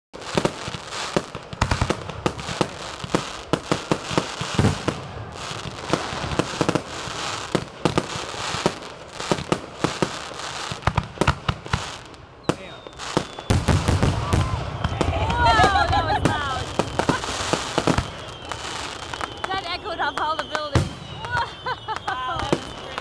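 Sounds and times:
fireworks bangs: 0:00.2 - 0:23.0.

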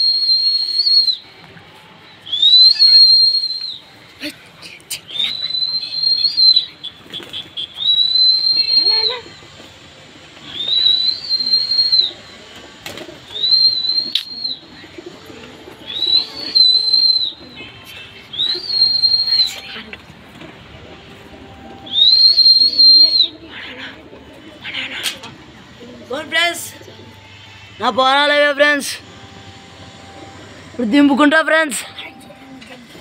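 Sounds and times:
person whistling loudly: 0:00.0 - 0:01.2, 0:02.3 - 0:03.8, 0:05.2 - 0:06.7, 0:07.8 - 0:09.3, 0:10.5 - 0:12.2, 0:13.3 - 0:14.6, 0:15.9 - 0:17.5, 0:18.3 - 0:19.6, 0:21.8 - 0:23.4.

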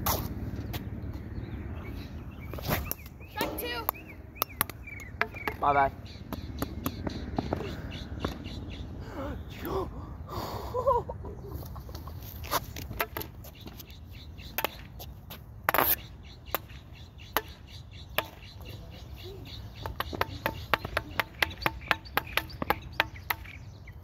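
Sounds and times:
plastic bat tapping pavement: 0:02.5 - 0:08.4, 0:12.0 - 0:18.8, 0:19.4 - 0:23.9.

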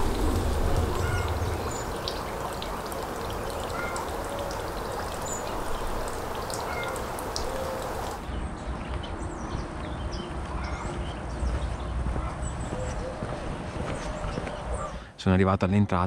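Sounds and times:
water running in canal: 0:00.0 - 0:08.3
faint bird chirps: 0:00.8 - 0:08.2.

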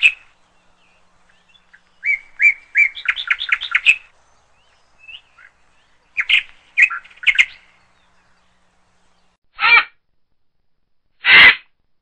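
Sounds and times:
birds chirping: 0:00.0 - 0:09.4
low bird call: 0:00.0 - 0:09.9.

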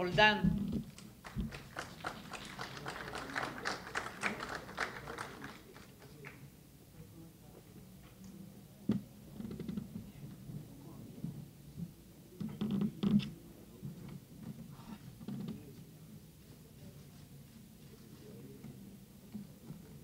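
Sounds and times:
people clapping: 0:00.9 - 0:06.5.

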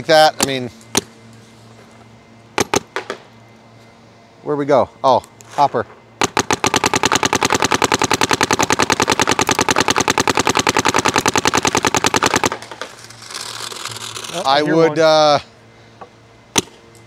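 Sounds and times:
paintball marker rapid fire: 0:02.6 - 0:03.2, 0:06.2 - 0:14.2.

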